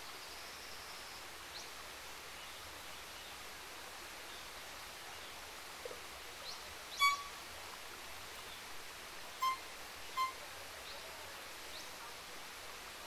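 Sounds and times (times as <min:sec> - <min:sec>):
violin high notes: 0:07.0 - 0:07.3, 0:09.4 - 0:09.6, 0:10.2 - 0:10.4.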